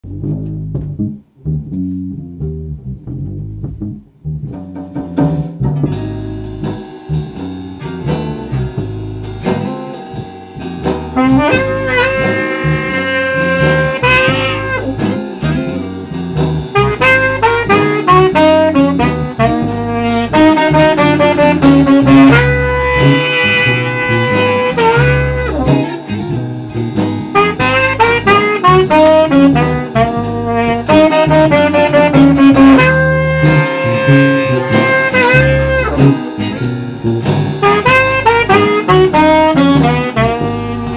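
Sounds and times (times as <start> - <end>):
electric bass plucking: 0.0 - 40.9
saxophone playing bluesy melody: 11.1 - 26.4, 27.3 - 40.9.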